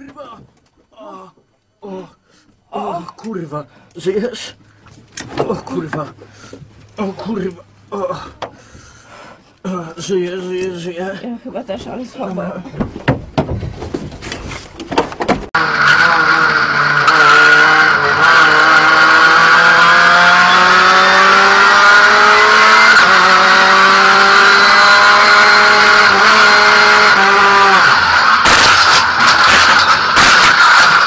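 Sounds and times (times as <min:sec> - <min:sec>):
racing car engine accelerating: 0:15.6 - 0:31.0.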